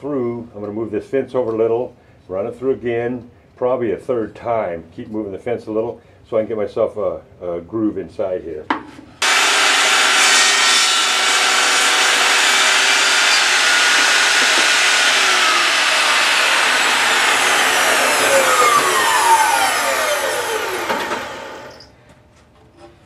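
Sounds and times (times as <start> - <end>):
saw blade winding down: 9.2 - 21.9
table saw cutting wood: 9.2 - 21.9.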